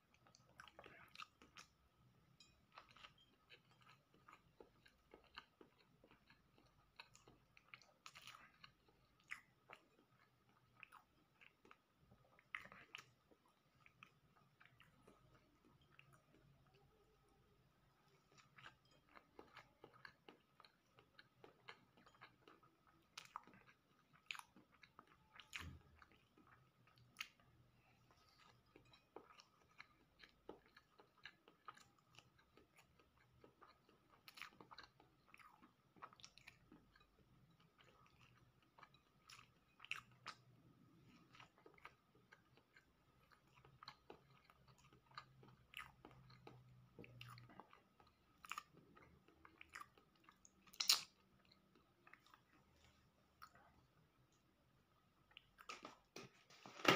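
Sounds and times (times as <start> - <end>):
chewing mouth clicks and smacks: 2.7 - 16.8, 18.1 - 27.5, 28.1 - 53.7.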